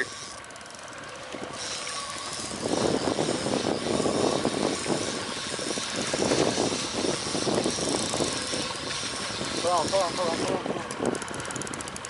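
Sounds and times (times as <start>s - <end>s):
boat motor running: 0.0s - 12.0s.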